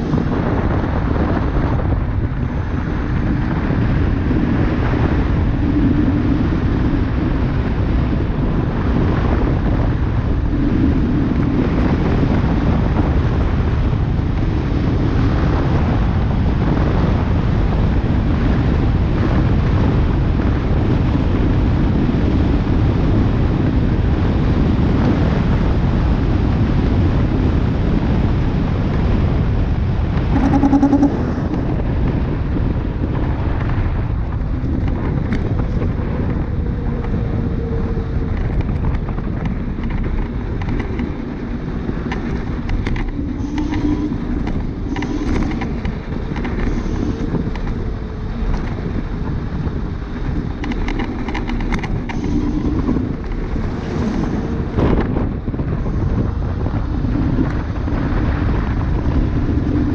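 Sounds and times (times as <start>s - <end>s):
scooter tyres on asphalt: 0.0s - 59.9s
wind on microphone: 0.0s - 59.9s
short pitched tone: 30.3s - 31.8s
small clicks and rattles: 37.8s - 41.3s, 42.0s - 49.0s, 50.2s - 55.2s.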